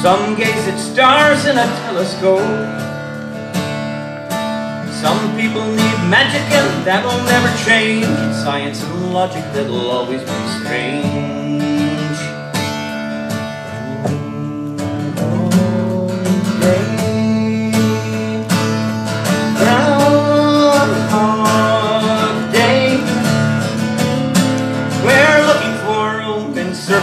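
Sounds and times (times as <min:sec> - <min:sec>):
acoustic guitar strummed: 0:00.0 - 0:27.0
person singing: 0:04.8 - 0:12.4, 0:13.7 - 0:23.2, 0:25.0 - 0:27.0.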